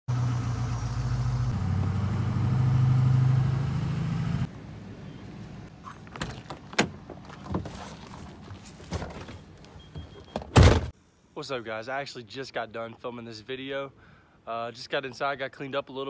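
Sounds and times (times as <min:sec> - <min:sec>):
truck engine running: 0:00.1 - 0:05.0.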